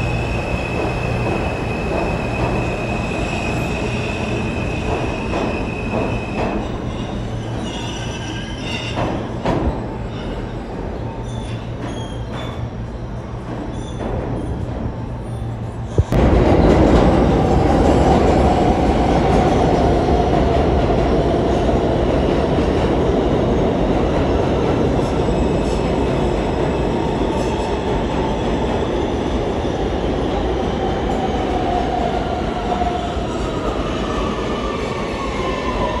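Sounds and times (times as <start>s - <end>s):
subway train wheels rumbling: 0.0s - 36.0s
wheel squeal: 5.2s - 9.0s, 11.0s - 12.7s.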